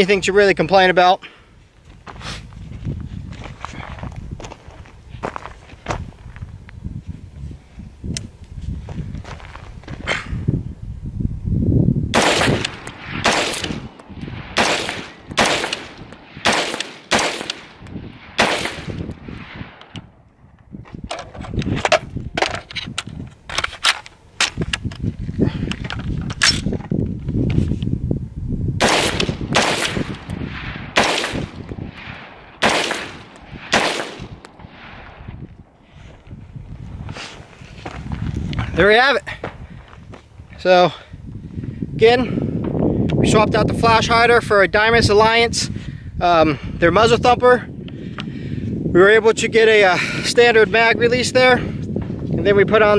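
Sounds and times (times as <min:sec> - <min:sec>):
rifle shots with echo: 0:12.1 - 0:19.8, 0:28.8 - 0:35.2.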